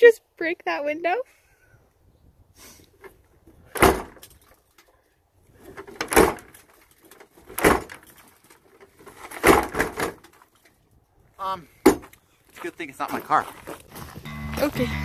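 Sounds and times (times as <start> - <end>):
car door banging: 3.8 - 4.2, 6.0 - 6.5, 7.5 - 8.0, 9.4 - 10.2.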